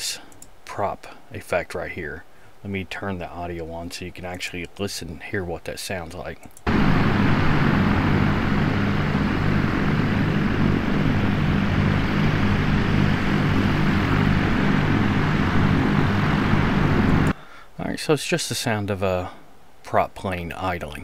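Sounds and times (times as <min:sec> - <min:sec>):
propeller aircraft engine idling: 0:06.7 - 0:17.3.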